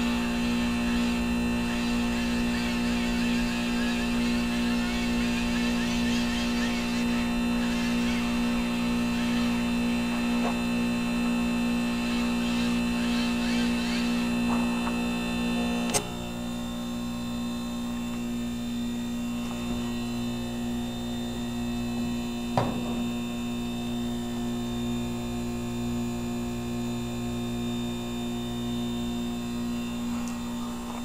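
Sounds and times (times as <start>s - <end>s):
heat pump humming: 0.0s - 31.0s
sharp click: 15.8s - 16.2s.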